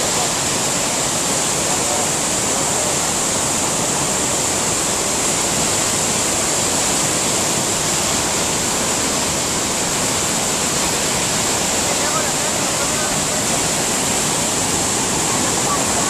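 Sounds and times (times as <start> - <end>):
waterfall crashing onto rocks: 0.0 - 16.0.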